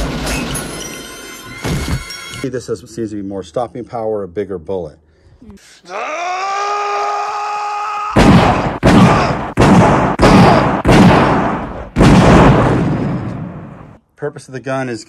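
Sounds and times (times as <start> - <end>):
man yelling: 5.8 - 8.3, 8.9 - 9.5.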